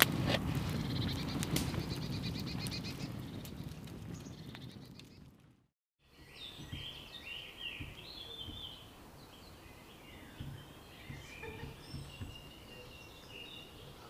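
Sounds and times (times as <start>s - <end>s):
campfire crackling: 0.0s - 14.0s
songbirds chirping: 0.7s - 5.3s, 6.0s - 14.0s
soft low thumps: 6.1s - 14.0s.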